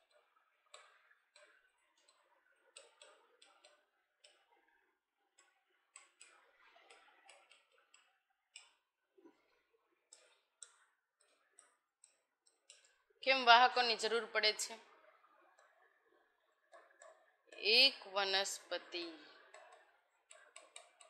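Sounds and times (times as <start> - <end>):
writing on a board: 0.0 - 4.5, 5.4 - 8.8, 19.4 - 21.0.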